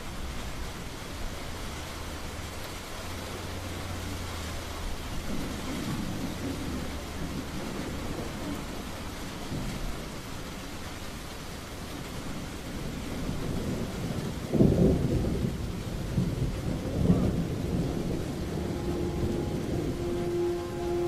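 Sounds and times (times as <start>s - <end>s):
steady rain: 0.0s - 21.0s
low thunder rumble: 12.4s - 21.0s.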